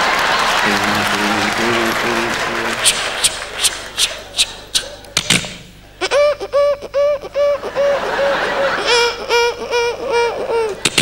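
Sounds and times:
whispered hisses into microphone: 0:02.7 - 0:05.0.

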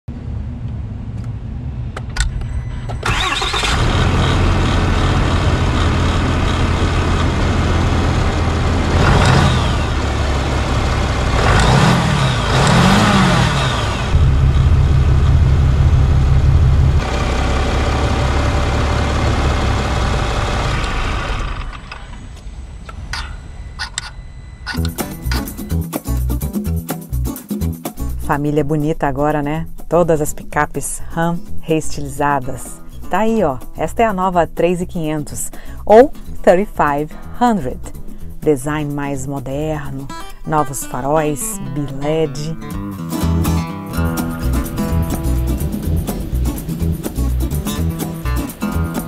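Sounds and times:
diesel truck engine starting and revving: 0:00.1 - 0:23.2, 0:42.5 - 0:49.0.

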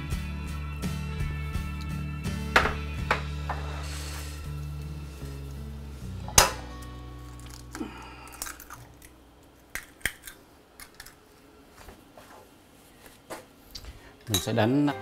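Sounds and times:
background music: 0:00.0 - 0:09.2, 0:14.3 - 0:15.0
eggs cracked on ceramic bowl: 0:07.3 - 0:11.2.

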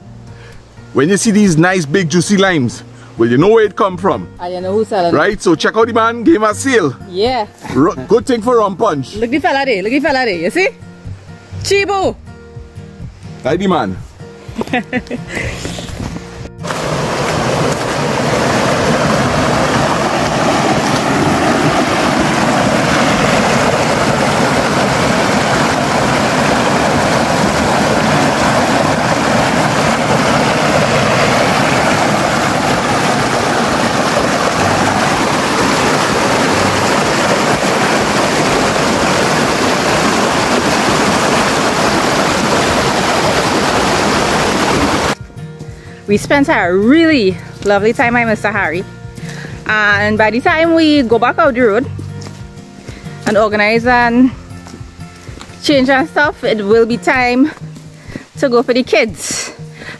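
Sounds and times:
stream splashing over ledge: 0:16.6 - 0:45.2.

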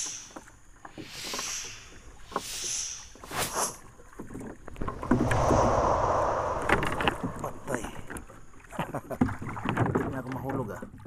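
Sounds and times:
loud rush of noise: 0:04.8 - 0:08.4.

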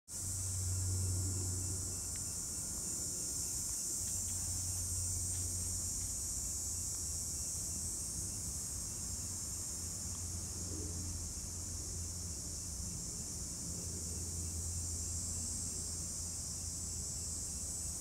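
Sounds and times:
insects chorus: 0:00.1 - 0:18.0.

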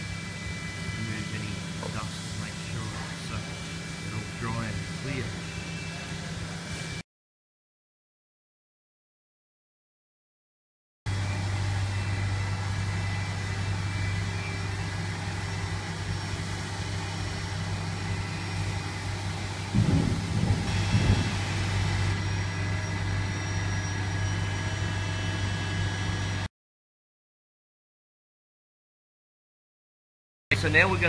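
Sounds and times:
workshop machine hum: 0:00.0 - 0:07.0, 0:11.1 - 0:26.5, 0:30.5 - 0:31.0.

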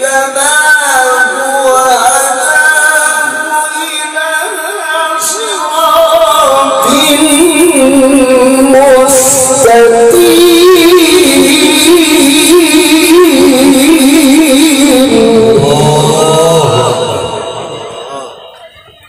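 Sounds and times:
man reciting melodically through a microphone: 0:00.0 - 0:18.7.

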